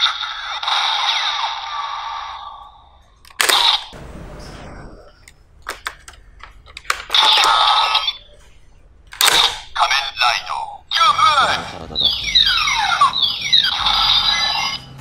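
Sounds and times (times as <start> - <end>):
electronic toy sound effects: 7.1 - 8.2, 9.8 - 15.0
electronic toy voice: 9.8 - 14.9.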